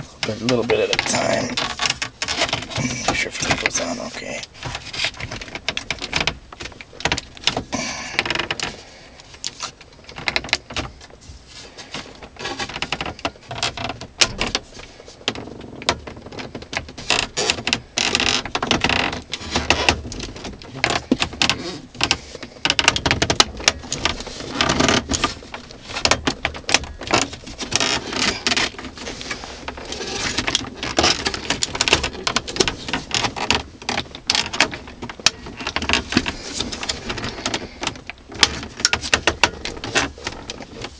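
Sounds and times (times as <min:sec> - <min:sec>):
plastic trim clicks and knocks: 0:15.2 - 0:40.9.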